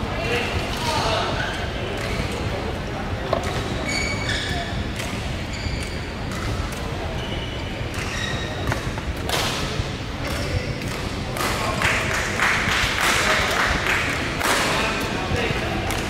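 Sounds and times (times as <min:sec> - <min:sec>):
people talking: 0:00.0 - 0:16.0
shoes squeaking on court mats: 0:03.4 - 0:09.0.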